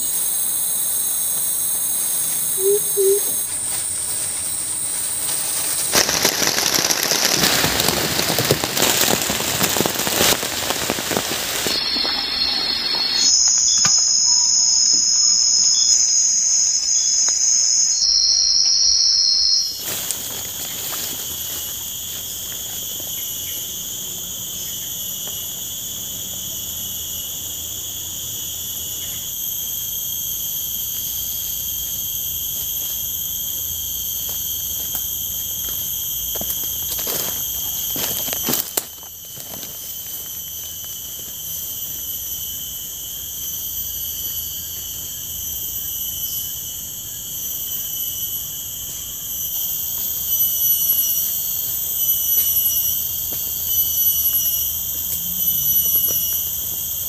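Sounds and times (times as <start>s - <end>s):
forest insects chorus: 0.0s - 57.0s
heavy rain on a tarp: 4.9s - 12.3s.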